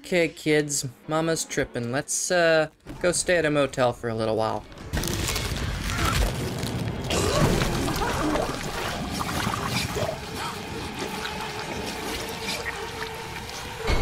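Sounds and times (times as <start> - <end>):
liquid pouring and splattering: 6.2 - 13.8
person vomiting: 7.1 - 8.8
steady droning tone: 8.5 - 14.0.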